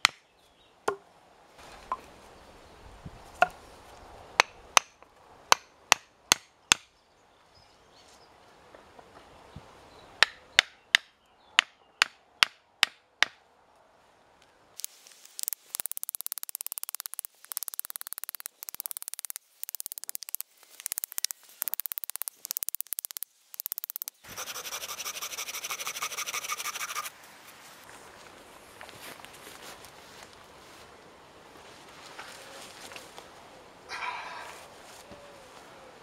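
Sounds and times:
hatchet knocking on wooden poles: 5.5 - 6.9, 10.2 - 13.4
rasping scraping bursts: 14.8 - 27.1
steady hiss: 14.8 - 29.3.

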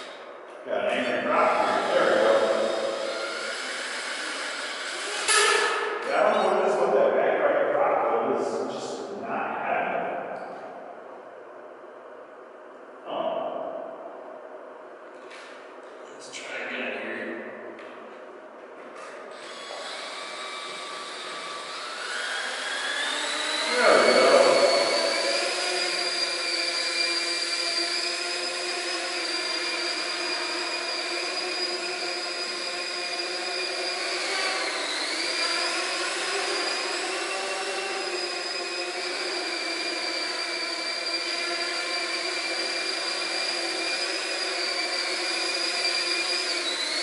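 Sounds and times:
drone propellers whining: 0.0 - 9.1, 19.0 - 47.0.

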